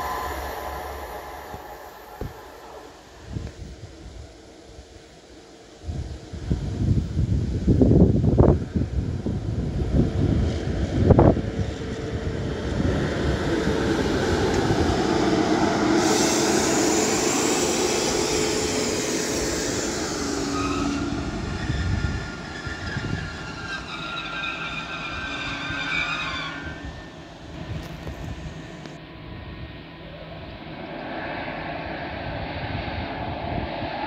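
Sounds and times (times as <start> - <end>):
high ringing tones: 0.0 - 3.6
train wheels rumbling on rail: 0.0 - 4.1, 5.8 - 29.0.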